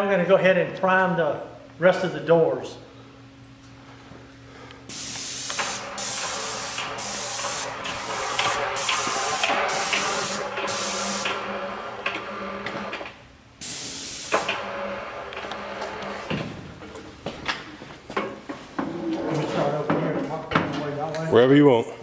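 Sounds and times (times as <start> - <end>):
steady low hum: 0.0 - 22.0
paint spray gun hissing: 4.9 - 11.5, 13.6 - 14.7.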